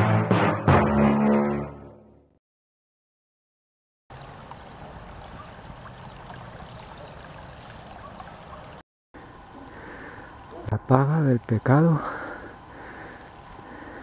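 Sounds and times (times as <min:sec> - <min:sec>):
background music: 0:00.0 - 0:02.2
steady rushing outdoor noise: 0:04.2 - 0:14.0
faint scattered ticks: 0:09.2 - 0:14.0.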